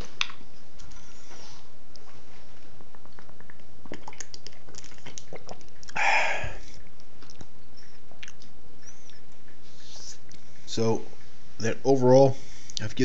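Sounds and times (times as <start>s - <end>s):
person chewing: 2.8s - 9.5s.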